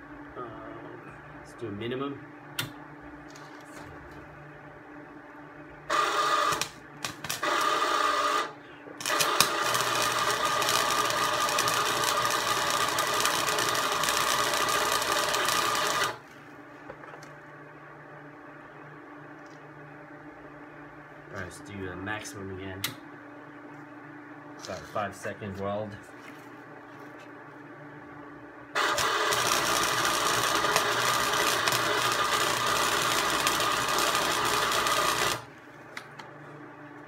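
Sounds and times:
welder arc buzzing: 0:05.8 - 0:16.3, 0:28.7 - 0:35.5.

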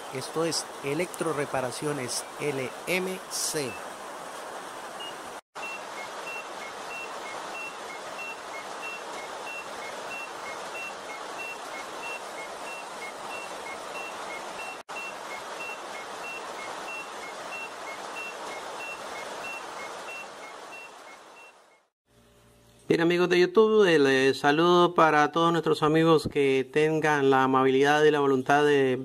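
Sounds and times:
steady rushing static noise: 0:00.0 - 0:21.9.

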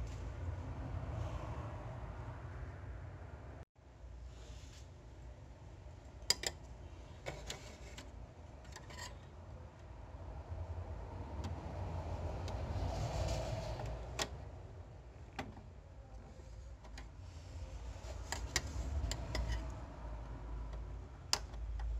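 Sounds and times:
metal pick scraping: 0:07.3 - 0:09.3, 0:18.0 - 0:19.8.

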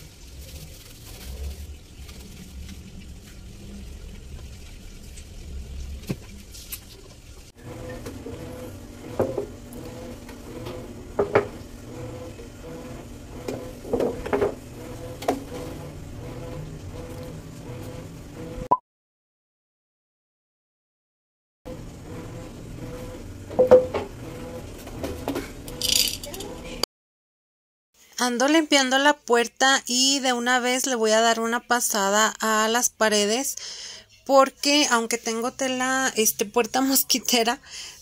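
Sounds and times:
glass jars clinking and knocking: 0:23.6 - 0:23.9, 0:25.8 - 0:26.4.

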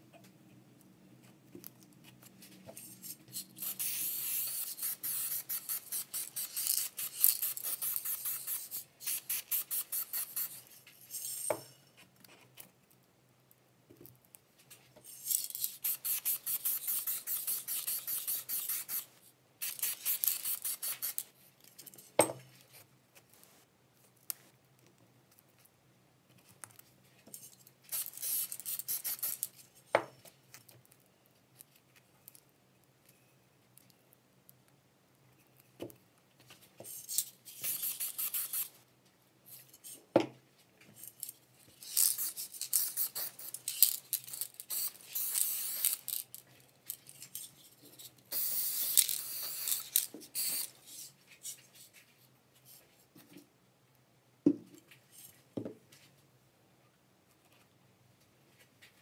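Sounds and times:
spray paint can hissing: 0:03.3 - 0:10.6, 0:15.6 - 0:21.3, 0:27.9 - 0:29.5, 0:37.6 - 0:38.8, 0:41.8 - 0:46.2, 0:48.3 - 0:50.7.

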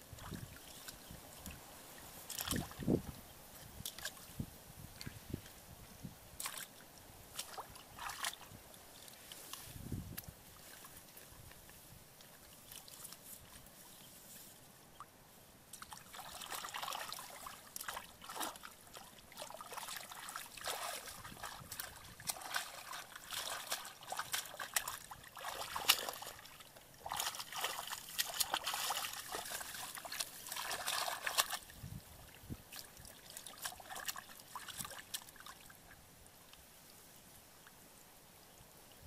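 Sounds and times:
hands sloshing in muddy water: 0:00.1 - 0:02.9, 0:06.4 - 0:09.7, 0:15.7 - 0:35.9.

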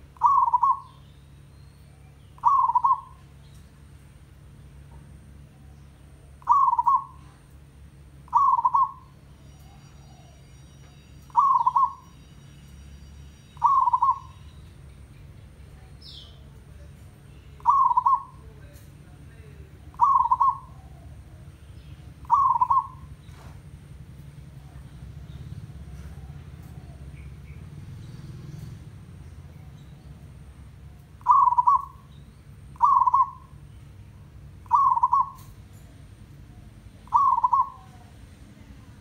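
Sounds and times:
dove cooing: 0:00.0 - 0:01.0, 0:02.0 - 0:03.4, 0:05.5 - 0:07.5, 0:08.2 - 0:10.4, 0:11.3 - 0:12.1, 0:13.6 - 0:14.4, 0:17.6 - 0:18.8, 0:19.7 - 0:23.7, 0:24.4 - 0:28.6, 0:30.8 - 0:32.1, 0:32.7 - 0:33.6, 0:34.6 - 0:38.2.

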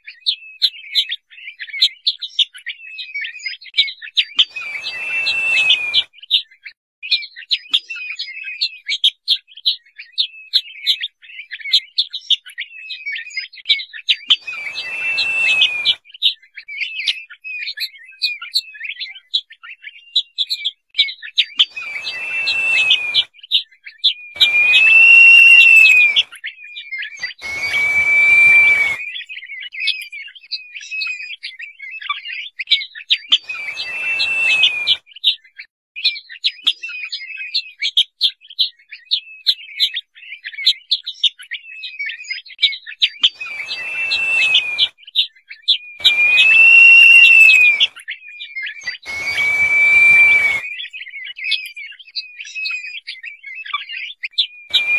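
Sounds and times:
partridge drawn-out whistles: 0:04.4 - 0:06.1, 0:14.3 - 0:16.0, 0:21.6 - 0:23.3, 0:24.4 - 0:26.3, 0:27.2 - 0:29.3, 0:33.3 - 0:35.0, 0:43.2 - 0:45.0, 0:46.0 - 0:48.0, 0:48.8 - 0:50.9
rapid short high chirps: 0:04.5 - 0:06.0, 0:14.4 - 0:16.0, 0:21.7 - 0:23.2, 0:24.4 - 0:26.2, 0:27.3 - 0:29.0, 0:33.4 - 0:35.0, 0:43.4 - 0:44.9, 0:46.0 - 0:47.9, 0:48.9 - 0:50.7.

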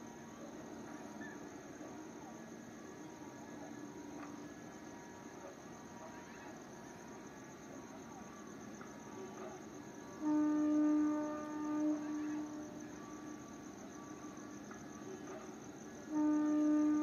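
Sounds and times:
crickets chirring: 0:00.0 - 0:17.0
train horn long note: 0:10.2 - 0:12.8, 0:16.1 - 0:17.0.

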